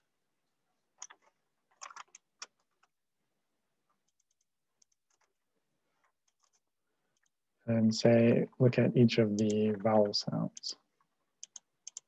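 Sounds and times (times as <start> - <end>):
computer keyboard and mouse clicks: 1.0 - 3.0, 4.0 - 5.4, 6.0 - 7.4, 9.4 - 9.8, 11.4 - 12.0.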